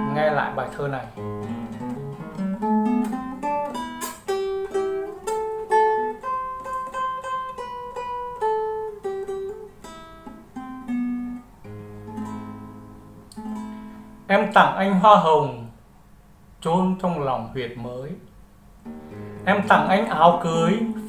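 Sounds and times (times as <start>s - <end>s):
fingerpicked acoustic guitar: 0.0s - 14.6s, 18.8s - 21.0s.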